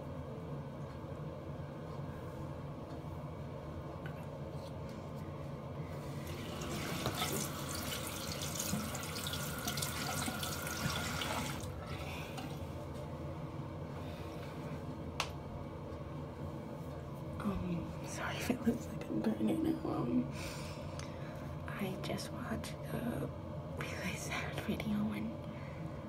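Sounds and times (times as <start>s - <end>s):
tap water running: 6.0s - 12.6s.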